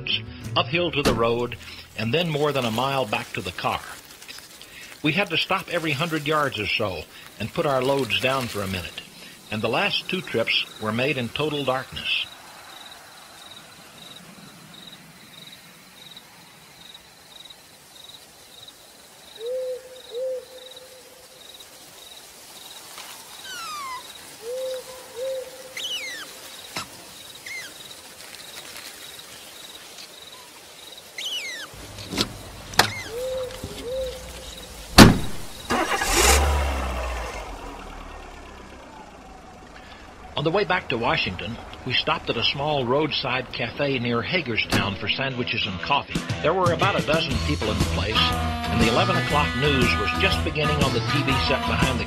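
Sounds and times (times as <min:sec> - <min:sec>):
short chirping calls: 0:18.6 - 0:28.0, 0:29.1 - 0:36.0
sharp crack: 0:31.7 - 0:45.2
heavy thud with low rumble: 0:34.9 - 0:35.5.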